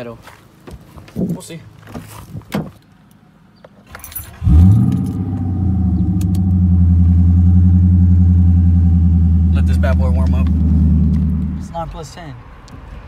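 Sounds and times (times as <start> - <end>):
car engine starting and idling: 3.9 - 12.2.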